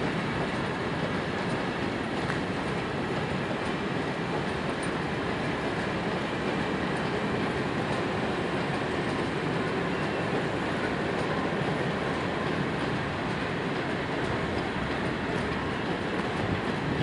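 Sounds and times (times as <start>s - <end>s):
train wheels rumbling on rail: 0.0s - 17.0s.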